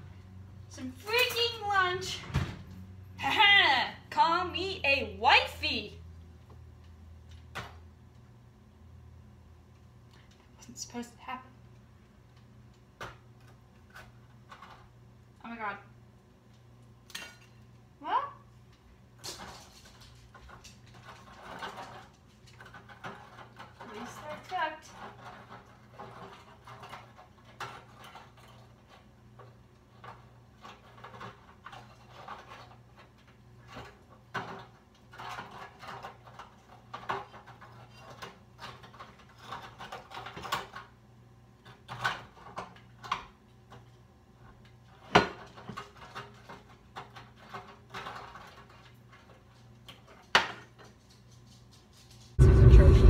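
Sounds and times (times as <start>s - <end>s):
steady low hum: 52.1s - 53.0s.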